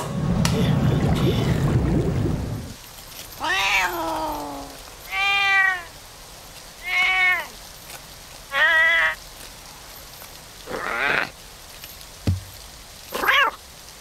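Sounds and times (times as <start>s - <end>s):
cartoon cat meowing: 8.5s - 9.2s.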